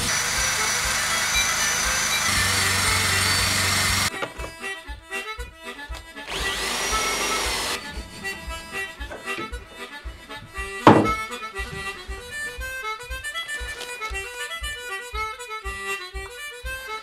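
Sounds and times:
drill spinning wire brush on steel: 0.0 - 4.1, 6.3 - 7.9
harmonica music: 0.0 - 17.0.

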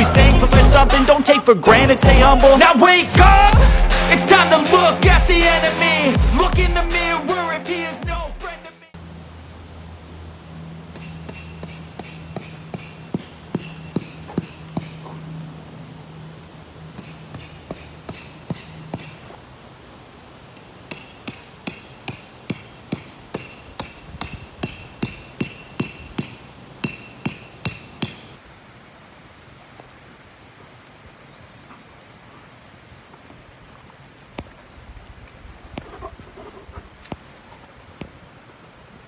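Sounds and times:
hammer striking metal tent stakes: 10.9 - 15.0, 16.9 - 19.3, 20.9 - 28.3.

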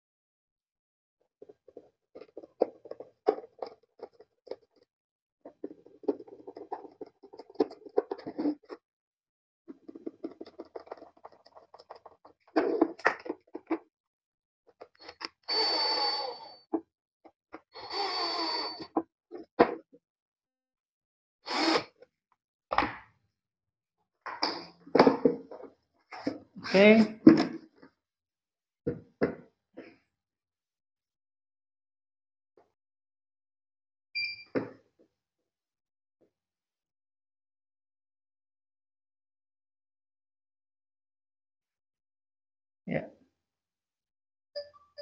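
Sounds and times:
cordless drill running: 15.5 - 16.4, 17.8 - 18.8, 21.5 - 21.9
screwdriver driving screws into wood: 21.5 - 21.9.

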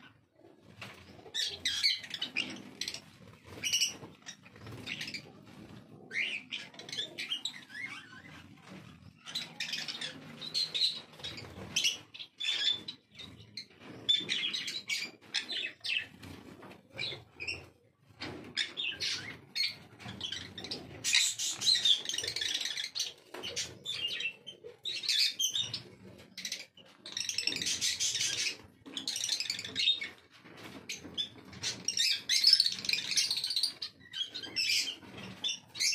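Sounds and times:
parrots chirping: 1.3 - 5.3, 6.1 - 8.5, 9.2 - 16.1, 18.6 - 30.2.

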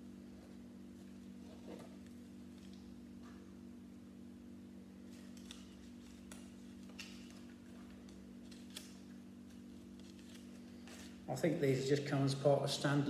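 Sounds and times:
steady low hum: 0.0 - 13.0
paper booklet rustling: 5.0 - 11.2.

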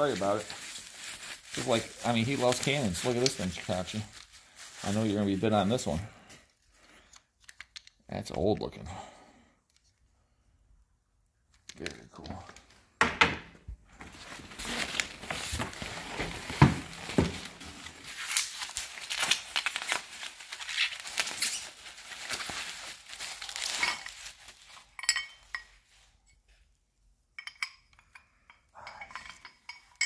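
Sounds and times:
paper and bubble wrap crumpling: 0.0 - 6.1, 14.0 - 24.9.

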